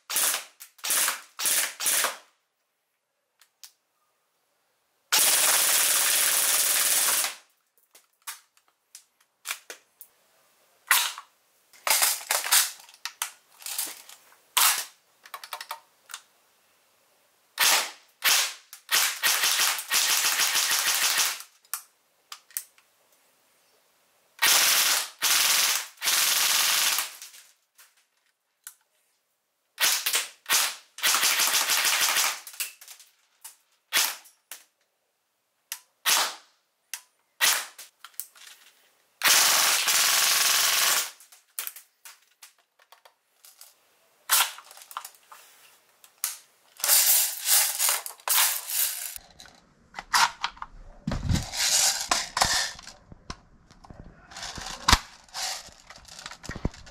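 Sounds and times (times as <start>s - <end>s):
airsoft guns firing: 0.1s - 2.2s.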